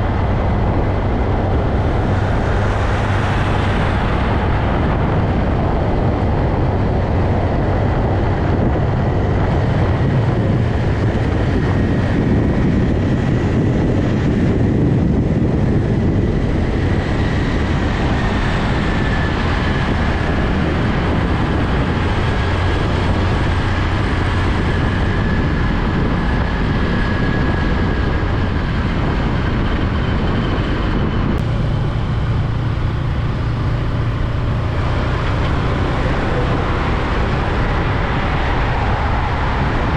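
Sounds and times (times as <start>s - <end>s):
highway traffic rumbling: 0.0s - 39.9s.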